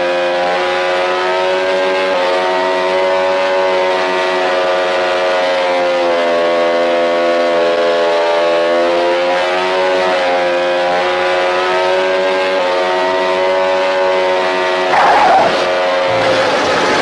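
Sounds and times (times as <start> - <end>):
motorcycle engine revving: 8.0 - 17.0.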